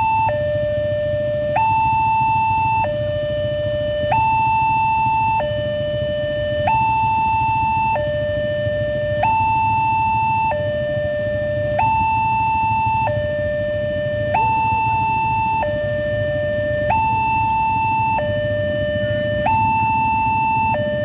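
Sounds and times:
low rumble of traffic: 0.0 - 21.0
two-tone crossing alarm: 0.0 - 21.0.

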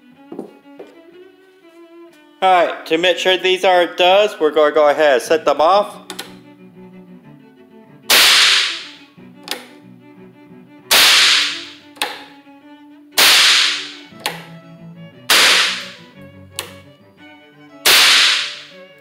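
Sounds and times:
percussion caps popping: 10.9 - 12.3, 15.3 - 16.0.

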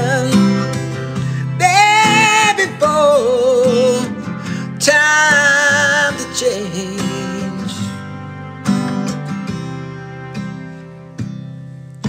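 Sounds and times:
person singing long notes: 0.0 - 8.0
strummed acoustic guitar: 0.0 - 12.0.

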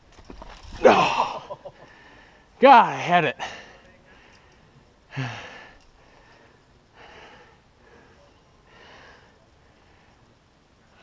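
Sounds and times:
person breathing hard: 3.4 - 10.2.

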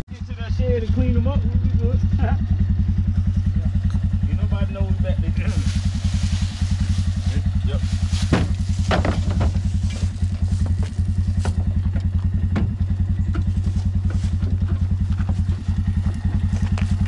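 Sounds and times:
atv engine idling: 0.0 - 17.0
short knocks and clatters: 8.2 - 10.1.

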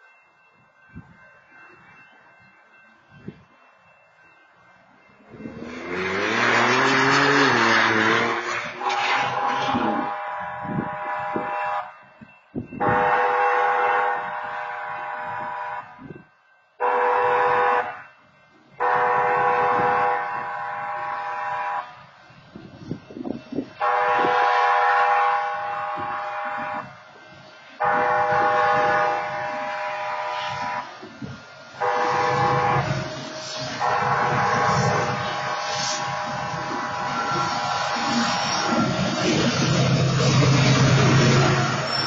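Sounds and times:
locomotive engine rumble: 4.7 - 11.6, 22.2 - 42.0
locomotive air horn blasts: 5.6 - 12.0, 12.8 - 16.1, 16.8 - 18.0, 18.8 - 22.1, 23.8 - 27.1, 27.7 - 42.0.

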